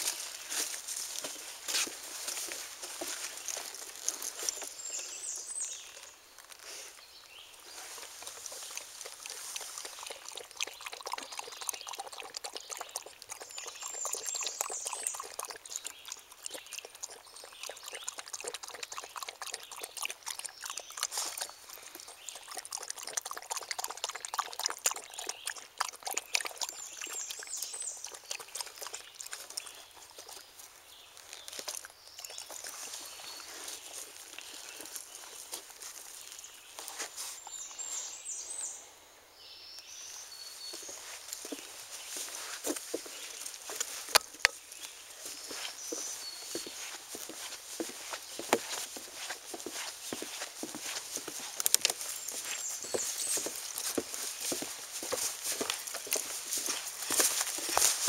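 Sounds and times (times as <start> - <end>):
stream trickling: 0.0 - 38.6, 39.8 - 58.0
dog lapping water: 7.7 - 30.7, 31.4 - 35.4, 45.2 - 58.0.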